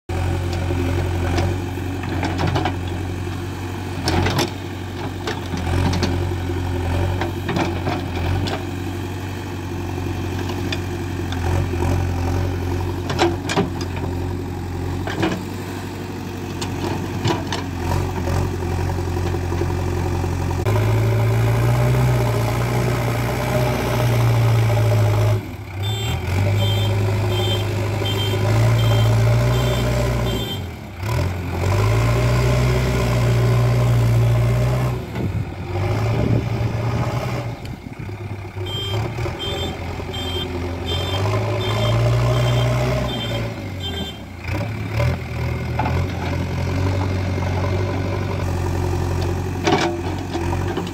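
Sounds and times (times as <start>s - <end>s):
diesel engine revving: 0.1s - 50.9s
reversing alarm beeps: 38.6s - 44.2s.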